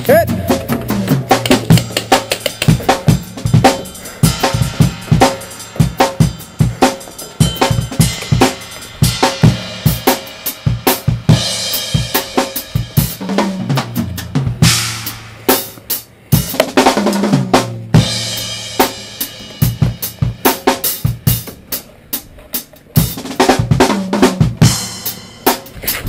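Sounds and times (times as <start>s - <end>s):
stepping bass line: 0.0s - 15.4s
fast heavy drums and cymbals: 0.0s - 26.0s.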